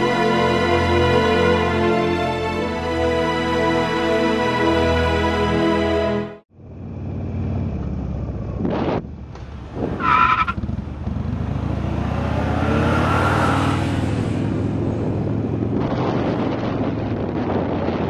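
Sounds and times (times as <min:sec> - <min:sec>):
motorcycle engine running: 0:06.5 - 0:09.7, 0:10.5 - 0:12.3
wind buffeting microphone: 0:13.7 - 0:18.0.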